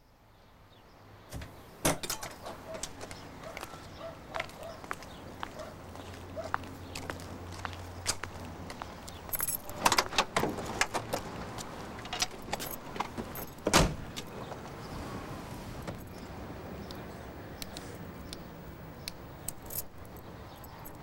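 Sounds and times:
keys jangling: 0:09.0 - 0:11.2, 0:12.0 - 0:14.4, 0:15.8 - 0:16.2, 0:19.4 - 0:21.0
car door shutting: 0:13.0 - 0:16.1.

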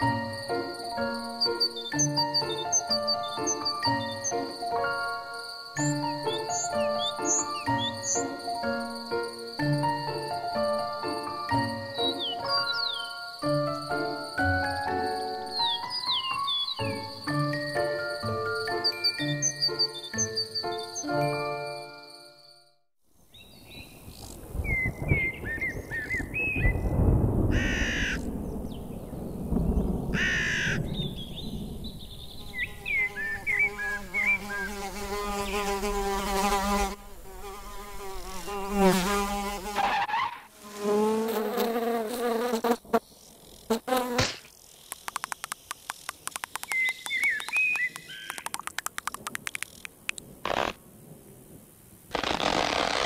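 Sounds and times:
bird chirps: 0:00.9 - 0:04.6, 0:05.4 - 0:08.5, 0:11.7 - 0:22.6, 0:23.3 - 0:27.0, 0:27.6 - 0:35.8, 0:44.7 - 0:50.2
cartoon housefly buzzing: 0:32.6 - 0:46.6, 0:50.4 - 0:50.8, 0:52.1 - 0:53.0
rapid small clicks: 0:44.8 - 0:50.8
short hissing bursts: 0:50.4 - 0:50.8.

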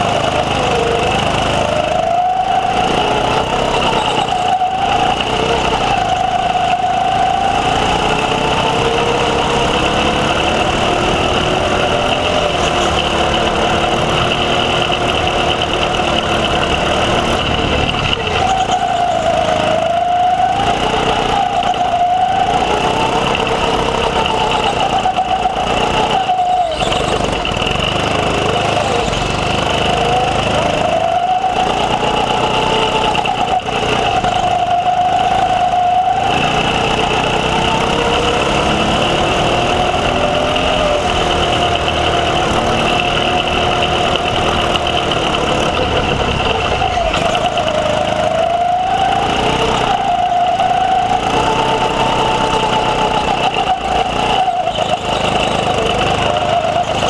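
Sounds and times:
go-kart engine revving: 0:00.0 - 0:57.0.

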